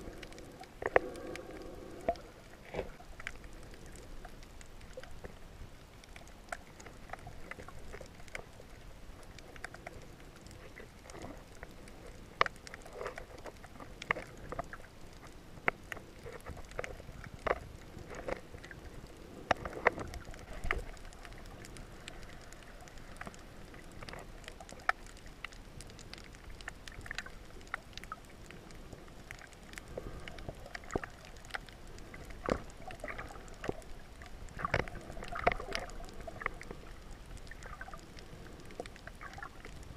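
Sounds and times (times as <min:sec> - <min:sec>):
muffled underwater water rumble: 0:00.0 - 0:39.9
underwater clicks and pops: 0:29.3 - 0:36.8.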